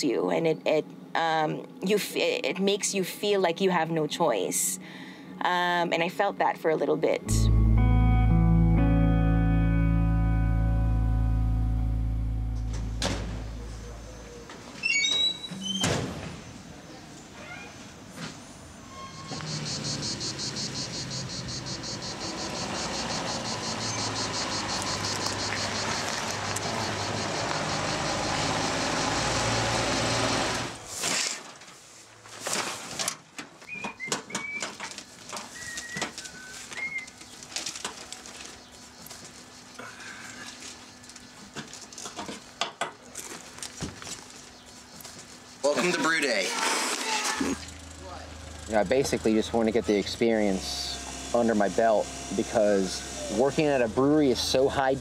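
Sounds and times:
low engine rumble: 7.3 - 14.6, 19.6 - 30.8
cicadas buzzing: 19.1 - 30.8, 35.1 - 55.0
bird chirps: 19.2 - 28.5, 35.5 - 37.4.

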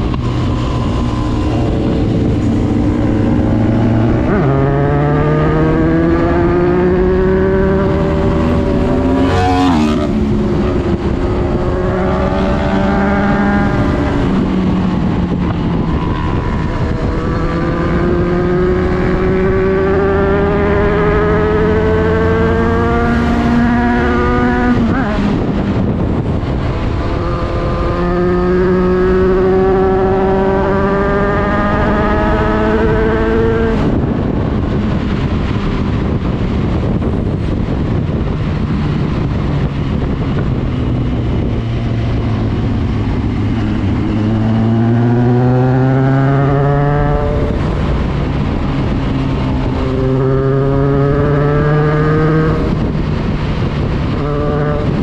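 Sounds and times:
motorcycle engine: 0.0 - 55.0
wind and road rush: 0.0 - 55.0.

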